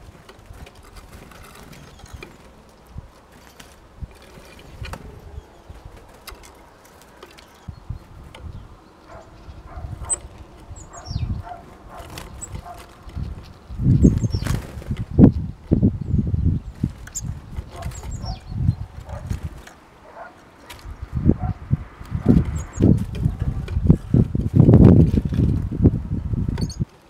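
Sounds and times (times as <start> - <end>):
high bird calls: 4.8 - 23.9.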